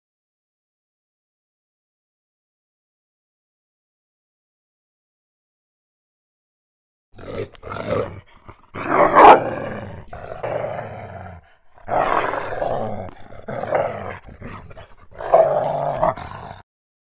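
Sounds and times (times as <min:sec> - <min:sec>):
werewolf growling: 0:07.2 - 0:16.7.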